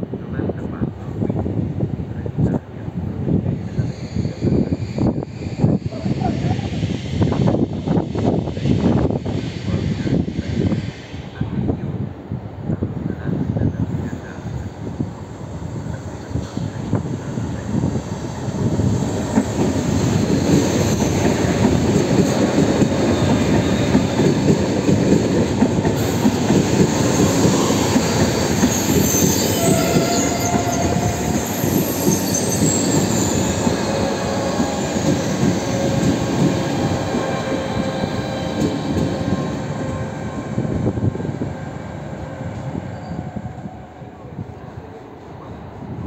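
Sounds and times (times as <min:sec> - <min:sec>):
train wheels rumbling on rail: 0:00.0 - 0:46.0
thin wheel squeals: 0:28.7 - 0:33.6.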